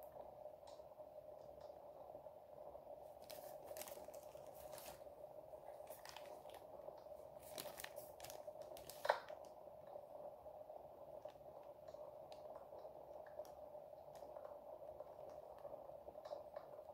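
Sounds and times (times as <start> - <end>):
faint steady hum: 0.0 - 16.9
plastic bags crinkling: 3.2 - 5.0, 5.7 - 6.7, 7.3 - 9.5.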